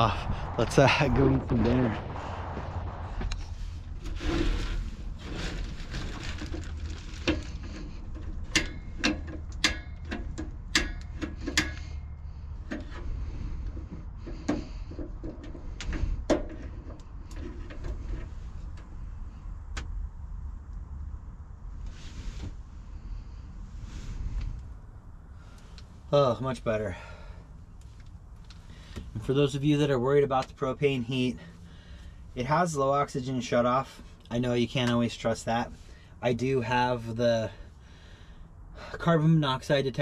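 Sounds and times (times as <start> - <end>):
low steady rumble: 0.0 - 40.0
sharp clicks and knocks of heater knob: 8.2 - 12.0.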